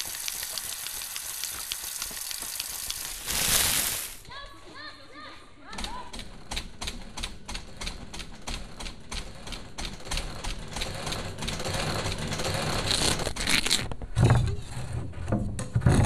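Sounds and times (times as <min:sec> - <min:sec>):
rapid clicks and taps: 0:00.0 - 0:03.2, 0:05.7 - 0:13.3.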